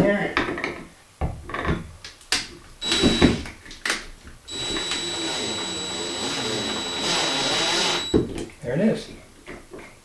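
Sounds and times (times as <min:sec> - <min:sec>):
cordless drill whining: 0:02.8 - 0:03.5, 0:04.5 - 0:08.3.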